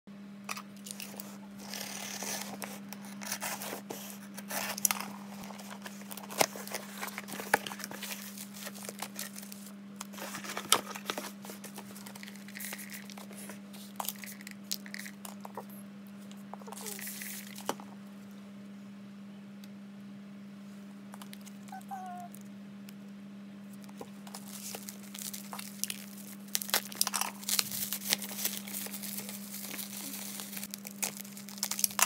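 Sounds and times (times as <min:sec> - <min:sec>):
steady low hum: 0:00.1 - 0:32.0
plastic packaging crinkling: 0:03.6 - 0:15.7, 0:23.8 - 0:32.0.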